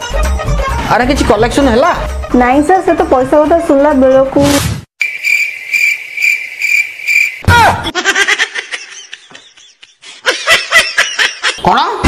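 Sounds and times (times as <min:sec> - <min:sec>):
cricket chirping: 0:05.0 - 0:07.5.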